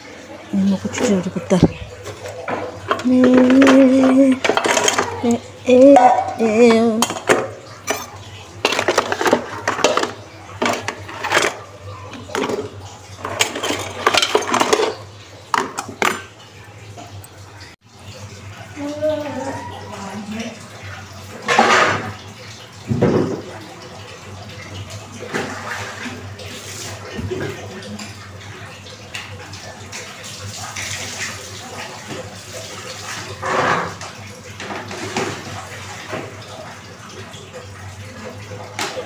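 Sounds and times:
water splashing and pouring: 0.0 - 39.0
dishes clattering and clinking: 0.2 - 16.4, 21.4 - 23.8, 25.2 - 26.2, 31.8 - 39.0.

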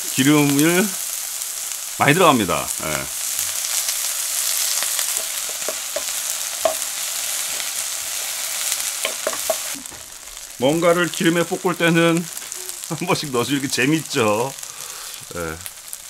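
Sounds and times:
food sizzling in oil: 0.0 - 16.0
stirring clicks: 4.7 - 6.9, 9.0 - 9.8.

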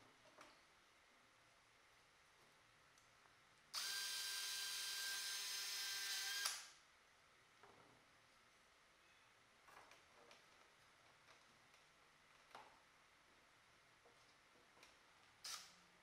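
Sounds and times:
cordless drill drilling wood: 3.8 - 6.6.

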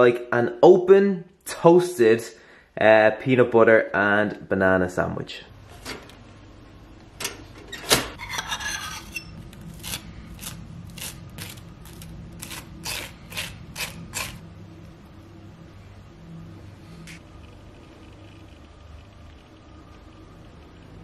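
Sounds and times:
knife scraping ceramic bowl: 8.2 - 11.6, 12.4 - 14.4
knife spreading on crisp toast: 9.8 - 14.4.

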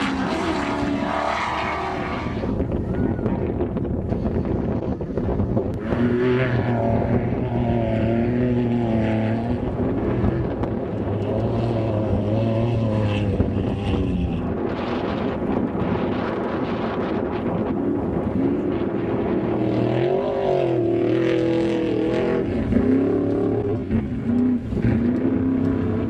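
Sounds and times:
truck engines racing past: 18.0 - 26.0.

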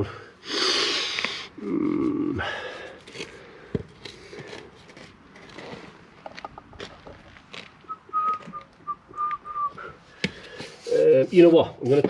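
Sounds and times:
person whistling: 7.9 - 9.9.

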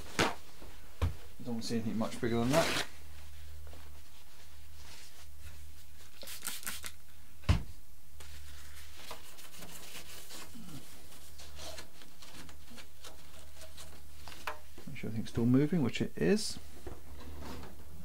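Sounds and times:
paper towel rustling: 0.0 - 6.8, 8.2 - 14.8.

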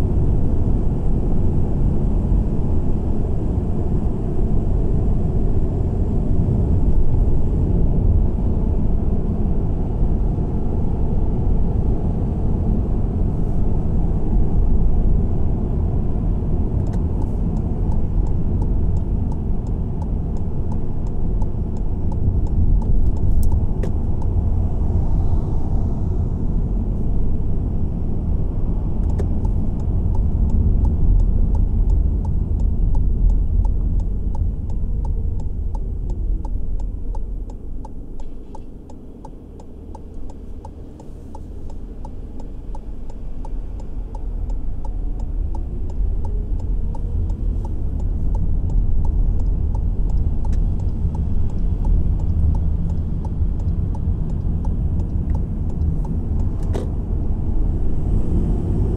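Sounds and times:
car engine and tyre rumble: 0.0 - 58.9
light regular ticking: 16.8 - 24.5, 29.0 - 56.9.

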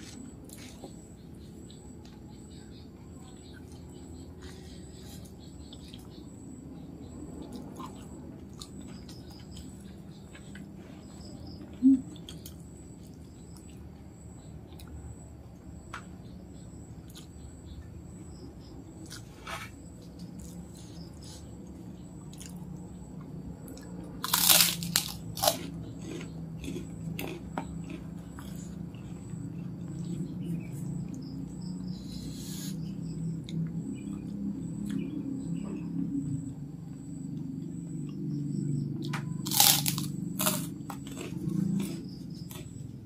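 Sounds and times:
crisp cracker crunches: 24.2 - 27.4, 39.4 - 41.3
person chewing with mouth clicks: 24.3 - 29.0.

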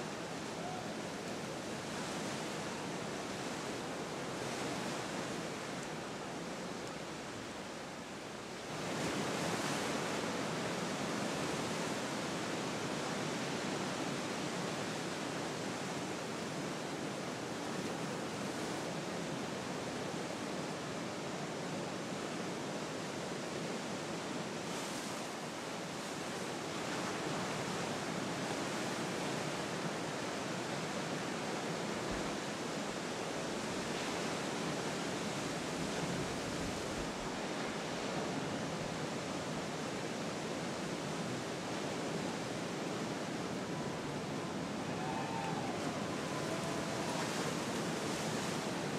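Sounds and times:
ocean surf: 0.0 - 48.9
wind: 0.0 - 48.9.

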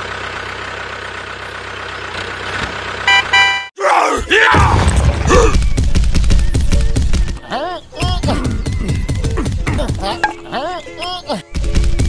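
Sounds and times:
short electronic beeps: 3.1 - 3.7.

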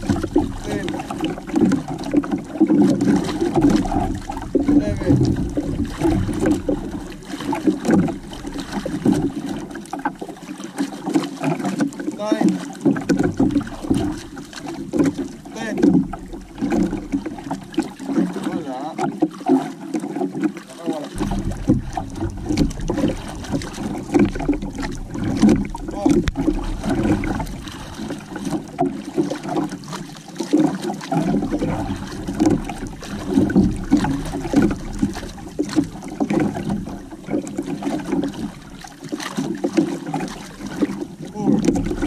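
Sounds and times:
water slapping against canoe hull: 0.0 - 42.0
wind buffeting microphone: 21.2 - 29.1.

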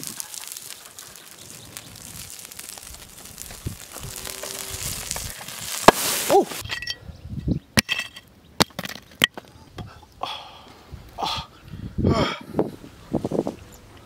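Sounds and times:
wood fire crackling: 0.0 - 6.7
stone cracking: 0.0 - 6.9
stone fragments clinking: 0.0 - 7.0, 7.8 - 9.0.

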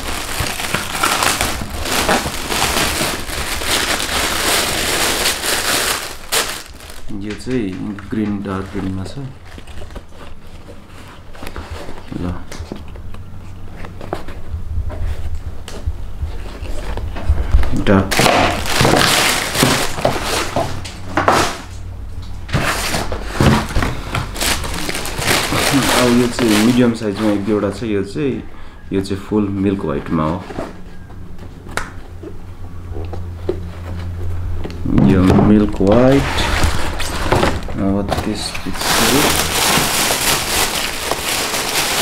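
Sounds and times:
cardboard and paper crinkling: 0.0 - 14.5, 16.3 - 21.6, 22.5 - 27.8, 35.1 - 42.0.

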